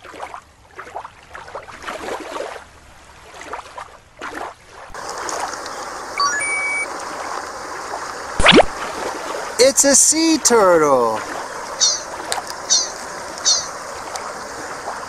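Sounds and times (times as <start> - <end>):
stream trickling over stones: 4.8 - 15.0
rising electronic beeps: 6.2 - 6.9, 11.8 - 12.1.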